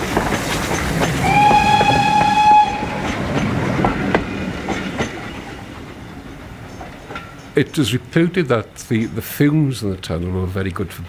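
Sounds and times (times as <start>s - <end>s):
steam train running: 0.0s - 11.0s
wheels clicking over rail joints: 0.0s - 11.0s
train whistle blast: 1.2s - 3.2s.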